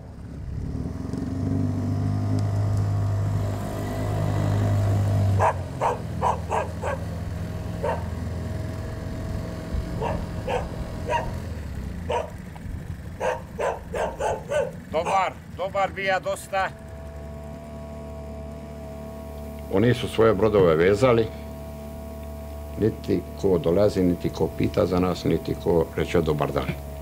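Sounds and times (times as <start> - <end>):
engine humming: 0.0 - 27.0
dog barking: 5.4 - 8.2, 9.9 - 11.4, 12.1 - 12.4, 13.2 - 15.3.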